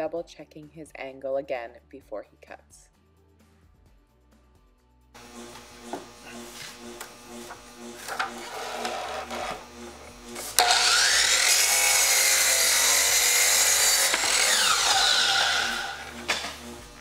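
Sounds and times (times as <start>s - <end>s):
miter saw cutting wood: 5.2s - 17.0s.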